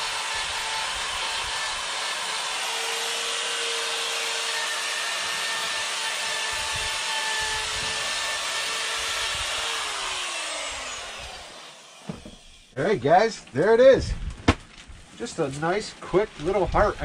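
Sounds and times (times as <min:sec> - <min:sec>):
rotary tool grinding wood: 0:00.0 - 0:12.8.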